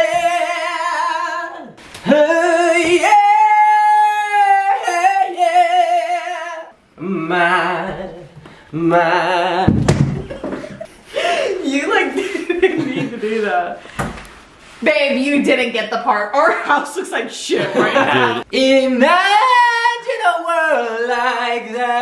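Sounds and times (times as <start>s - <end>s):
person singing a cappella: 0.0s - 10.0s, 17.9s - 22.0s.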